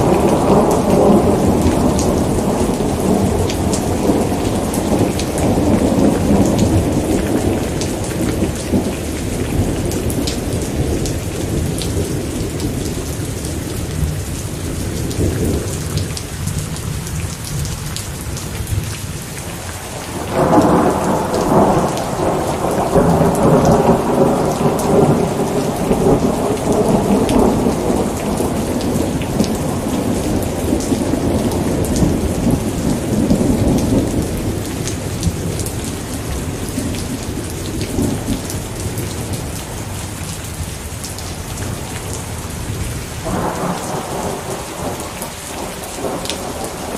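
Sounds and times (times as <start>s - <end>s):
thunder rumbling: 0.0s - 17.7s, 20.0s - 41.0s, 41.6s - 46.9s
steady rain: 0.0s - 46.9s
thunder clap: 20.0s - 35.6s.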